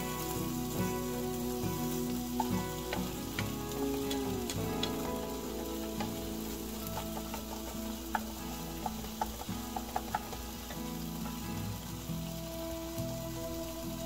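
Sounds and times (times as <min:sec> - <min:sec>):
food sizzling in a frying pan: 0:00.0 - 0:14.0
spatula tapping pan: 0:01.8 - 0:11.4.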